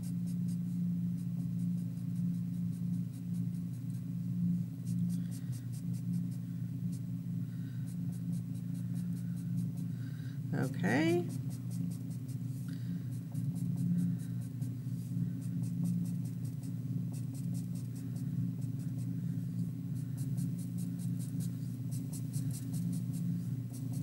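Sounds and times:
steady low hum: 0:00.0 - 0:24.0
marker drawing on paper: 0:20.2 - 0:24.0.

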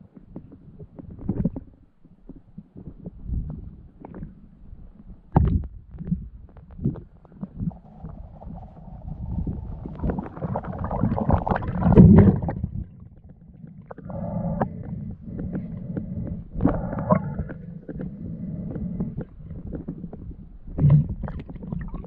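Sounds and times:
muffled underwater rumbles: 0:00.0 - 0:22.0
underwater rushing: 0:07.4 - 0:22.0.

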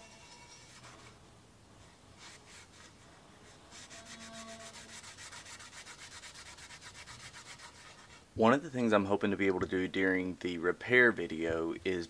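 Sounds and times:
abrasive pad rubbing metal: 0:00.0 - 0:01.2, 0:02.2 - 0:08.2.

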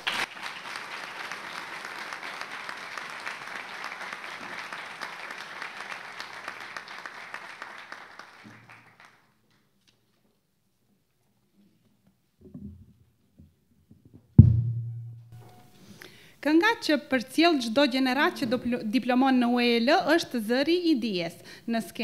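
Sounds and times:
audience applauding: 0:00.0 - 0:09.3.

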